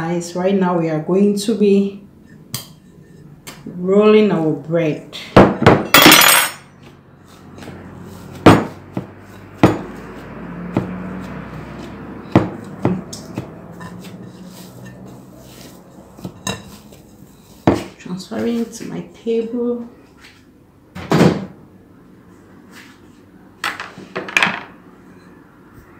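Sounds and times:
soft rustling of dough: 6.8 - 20.6, 22.2 - 23.6.

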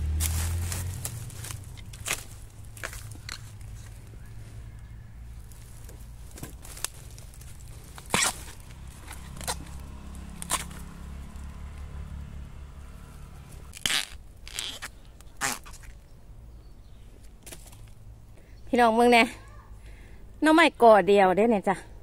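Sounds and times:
low steady rumble: 0.0 - 15.3
dry leaves and twigs crunching: 0.0 - 16.2, 16.8 - 18.3.

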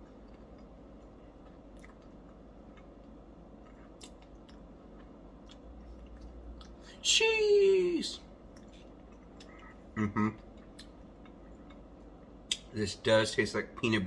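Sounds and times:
person chewing: 0.0 - 7.0, 8.4 - 12.7.

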